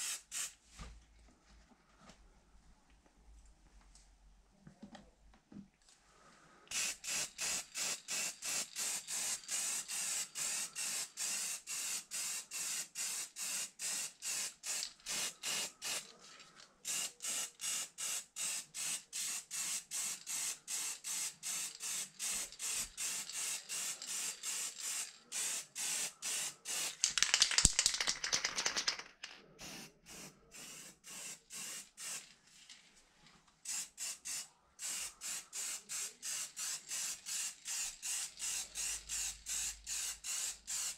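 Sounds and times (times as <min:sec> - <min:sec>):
spray paint can hissing: 0:00.0 - 0:00.5, 0:06.7 - 0:16.1, 0:16.9 - 0:28.9, 0:29.6 - 0:32.2, 0:33.7 - 0:40.9.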